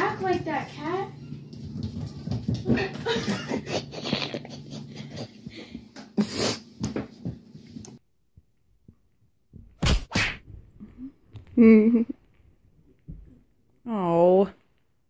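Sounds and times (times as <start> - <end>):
kitten paws skittering on floor: 0.0 - 4.2.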